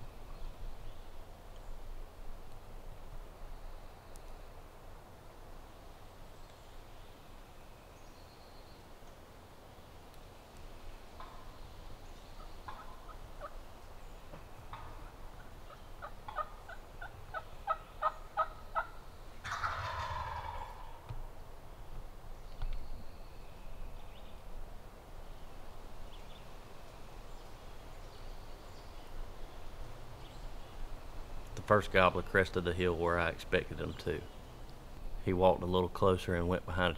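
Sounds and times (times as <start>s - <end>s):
turkey gobbling: 12.7s - 13.6s, 14.7s - 21.2s.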